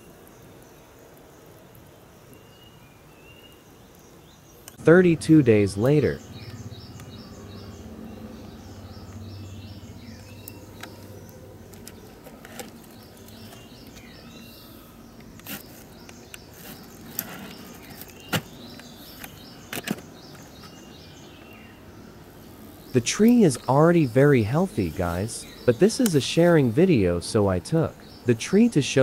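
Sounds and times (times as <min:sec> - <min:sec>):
small birds chirping: 0:00.0 - 0:29.0
steady outdoor hum: 0:00.0 - 0:29.0.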